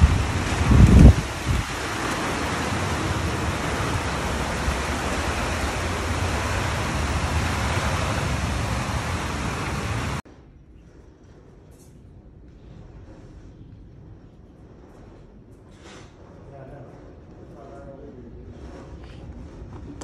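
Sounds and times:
heavy rain hissing: 0:00.0 - 0:10.2
low rumble: 0:00.0 - 0:20.0.

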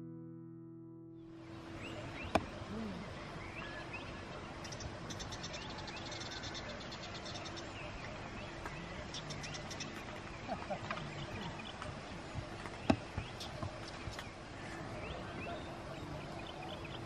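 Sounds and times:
birds chirping: 0:01.2 - 0:17.0
steady background hiss: 0:01.2 - 0:17.0.

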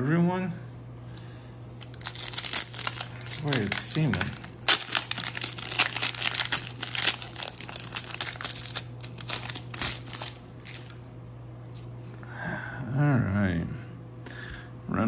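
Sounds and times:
foil wrapper tearing and crinkling: 0:01.8 - 0:11.0.

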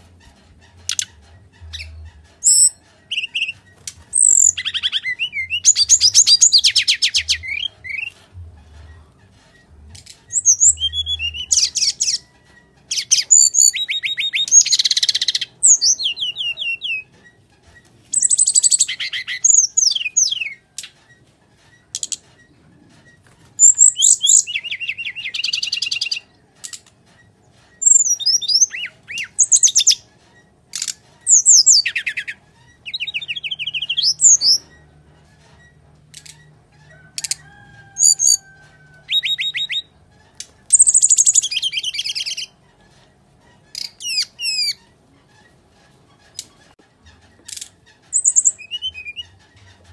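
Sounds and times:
bird singing trills and whistles: 0:00.7 - 0:08.2, 0:10.2 - 0:17.2, 0:18.1 - 0:21.0, 0:23.4 - 0:26.3, 0:27.8 - 0:30.1, 0:30.8 - 0:34.8, 0:37.2 - 0:39.9, 0:40.7 - 0:42.6, 0:43.7 - 0:44.8, 0:48.1 - 0:49.4.

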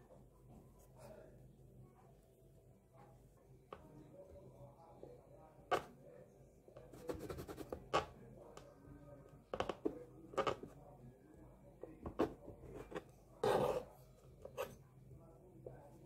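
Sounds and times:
knife cutting through icing: 0:12.2 - 0:14.8.

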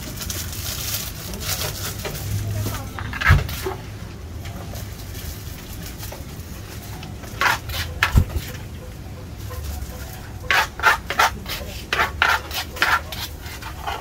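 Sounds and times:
plastic bag rustling: 0:00.0 - 0:08.7
low street hum: 0:00.0 - 0:14.0.

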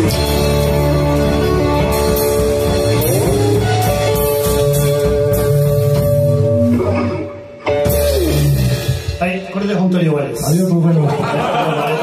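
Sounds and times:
electric guitar ringing notes: 0:00.0 - 0:09.6
rockabilly band playing live: 0:00.0 - 0:12.0.

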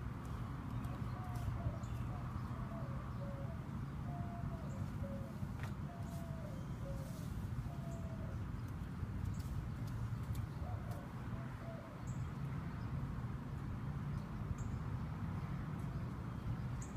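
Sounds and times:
bird cooing: 0:00.8 - 0:08.4.

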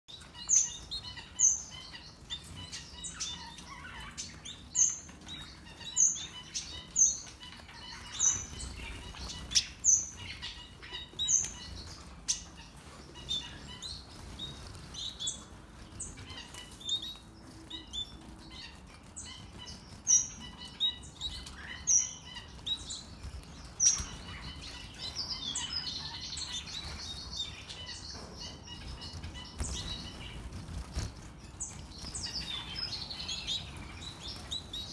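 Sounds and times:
wings fluttering: 0:28.8 - 0:34.9.

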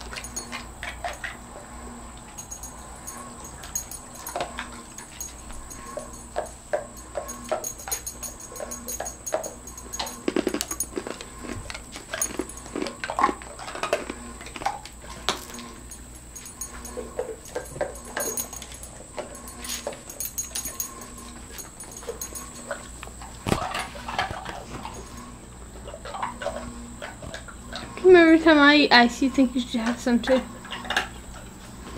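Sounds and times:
dogs whining and whimpering: 0:02.4 - 0:11.0, 0:15.4 - 0:25.3.

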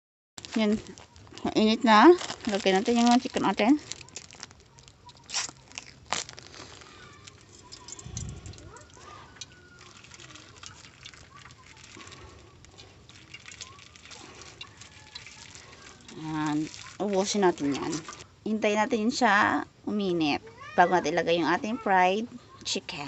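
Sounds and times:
oil crackling in hot pan: 0:00.4 - 0:18.4.

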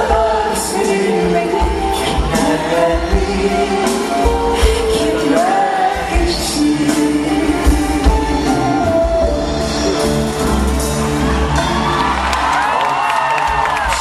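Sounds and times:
person singing: 0:00.0 - 0:10.8
live pop band: 0:00.0 - 0:14.0.

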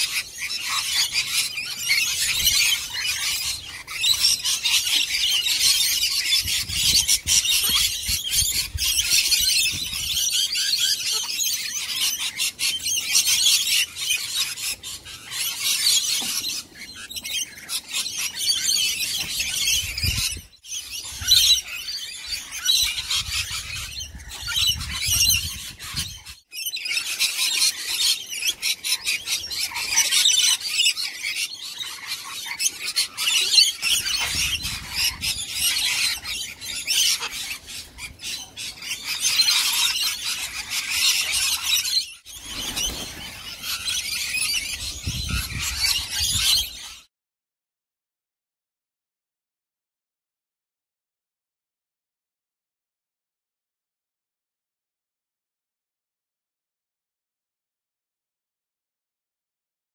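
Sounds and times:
parrots screeching and chattering: 0:00.0 - 0:47.1.

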